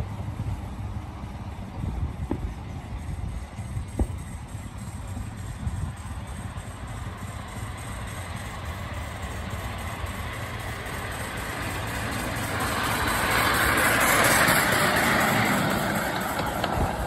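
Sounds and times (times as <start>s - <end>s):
model steam locomotive passing: 0.0s - 17.0s.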